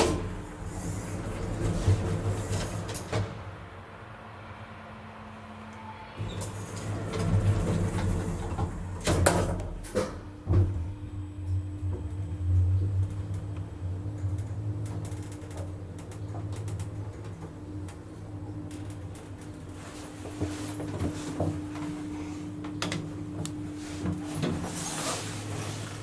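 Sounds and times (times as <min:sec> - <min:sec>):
elevator machinery running hum: 0:00.0 - 0:26.0
elevator mechanical clunks and clicks: 0:06.2 - 0:21.9.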